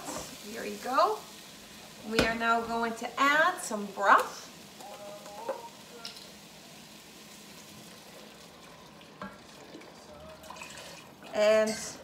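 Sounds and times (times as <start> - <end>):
liquid pouring into pot: 7.1 - 11.5.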